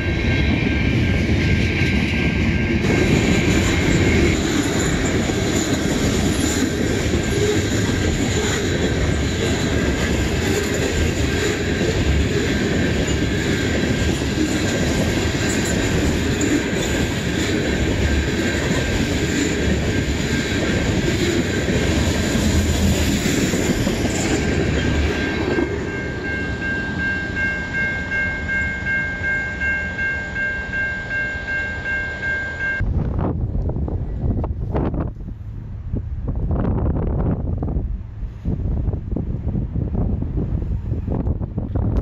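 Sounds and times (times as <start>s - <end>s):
train wheels rumbling and clicking: 0.0s - 31.2s, 31.8s - 42.0s
crossing warning bell ringing: 0.0s - 32.8s.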